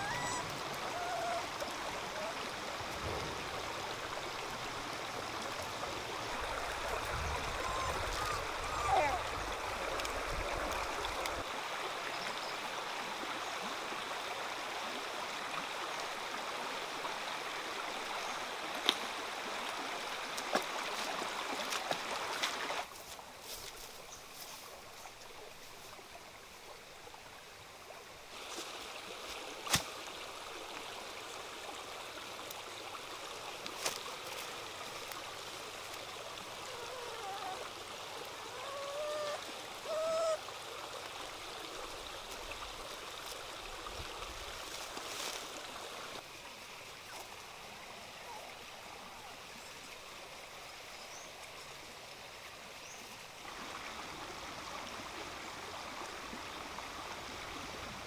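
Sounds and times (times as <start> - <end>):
puppies whimpering: 0.0 - 1.6, 7.0 - 9.4, 36.6 - 37.7, 38.4 - 40.4
outdoor background noise: 0.0 - 58.0.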